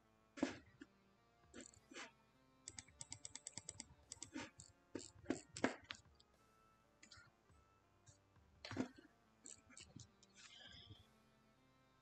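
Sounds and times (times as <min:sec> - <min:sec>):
keyboard keys clicking: 0:02.7 - 0:04.6.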